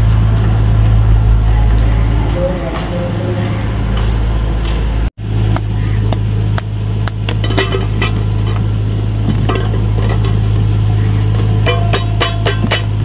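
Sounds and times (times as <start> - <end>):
steady low hum: 0.0 - 13.0
metallic clinks and knocks: 6.6 - 10.6, 11.3 - 13.0.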